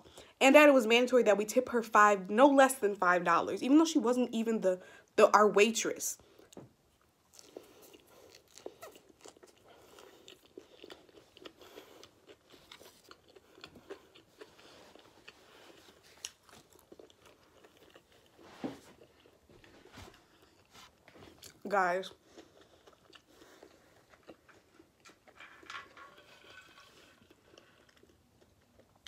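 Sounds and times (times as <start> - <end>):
person chewing food: 6.2 - 29.0.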